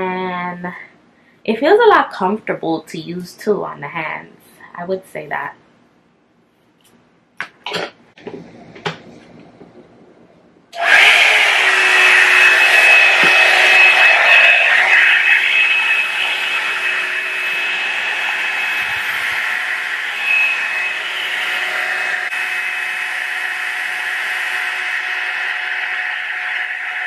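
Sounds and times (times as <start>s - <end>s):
hair dryer brush running: 10.8s - 27.0s.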